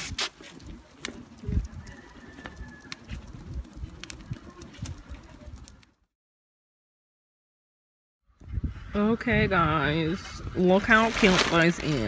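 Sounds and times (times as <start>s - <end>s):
sharp ticks: 0.5s - 6.0s.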